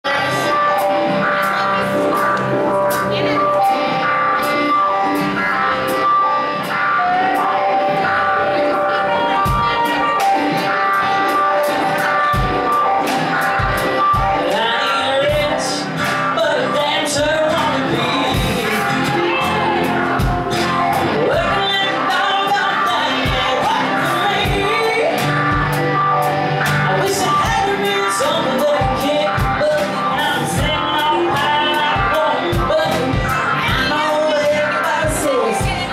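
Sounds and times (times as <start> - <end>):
live country band: 0.0 - 35.9
woman singing lead vocal: 0.1 - 3.7, 12.1 - 35.9.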